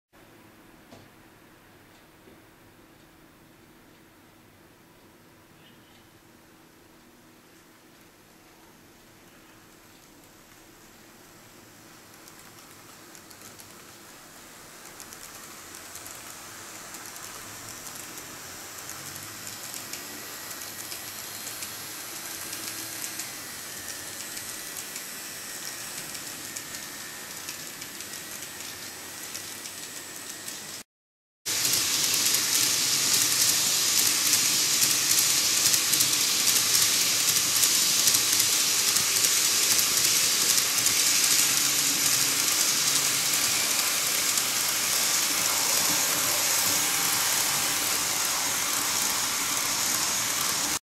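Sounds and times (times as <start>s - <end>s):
model train wheels rattling on rails: 12.0s - 30.8s, 31.5s - 50.8s.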